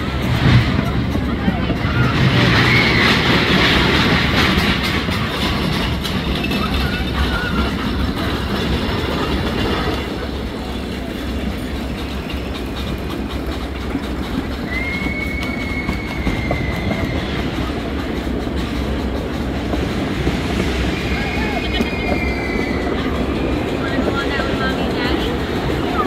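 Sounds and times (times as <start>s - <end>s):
train wheels rumbling and clattering: 0.0s - 26.0s
high wheel squeal: 0.8s - 3.9s, 9.1s - 19.2s, 20.2s - 26.0s.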